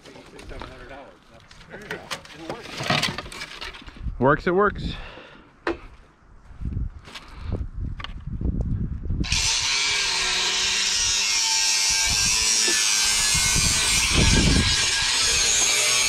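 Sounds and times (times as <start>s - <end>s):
power tool whirring: 9.2s - 16.0s.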